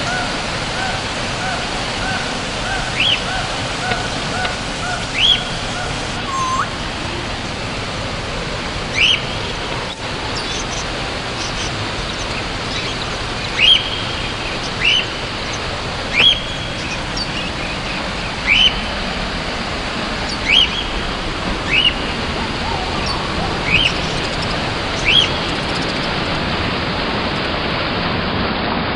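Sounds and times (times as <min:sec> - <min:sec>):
bird chirping: 0:00.0 - 0:06.8, 0:08.9 - 0:19.1, 0:20.2 - 0:21.0, 0:21.6 - 0:26.3
waterfall rushing: 0:00.0 - 0:28.9.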